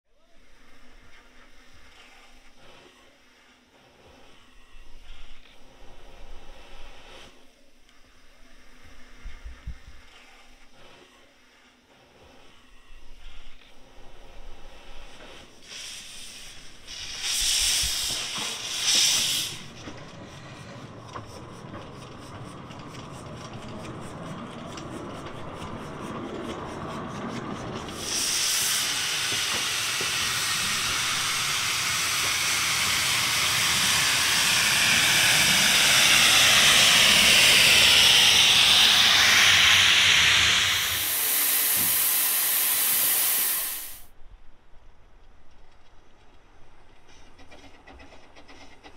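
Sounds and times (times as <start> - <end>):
loud steady steam hiss: 0.2 - 24.2, 25.2 - 44.2
steam locomotive hissing: 0.2 - 44.2
loud steam bursts: 14.2 - 20.9, 27.8 - 44.1.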